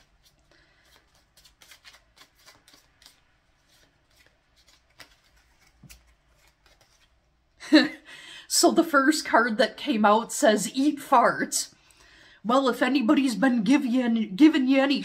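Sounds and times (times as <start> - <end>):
playing cards shuffling: 0.0 - 7.3.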